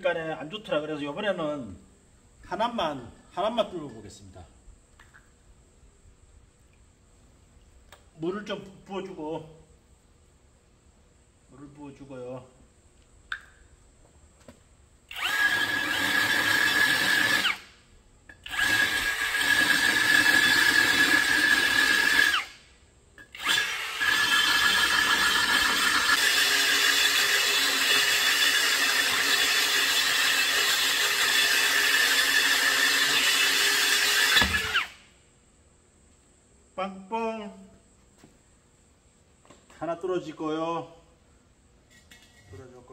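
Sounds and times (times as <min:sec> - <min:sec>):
drill grinding through clay: 0:15.1 - 0:17.7, 0:18.3 - 0:22.6, 0:23.2 - 0:35.0.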